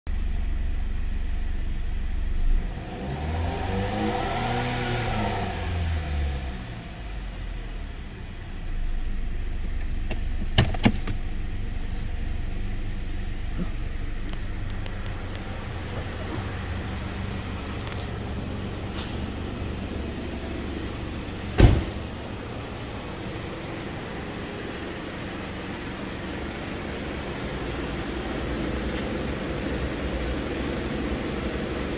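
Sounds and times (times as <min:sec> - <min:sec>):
car engine idling: 0:00.1 - 0:02.8, 0:05.7 - 0:31.9
loud thump: 0:21.5 - 0:22.1.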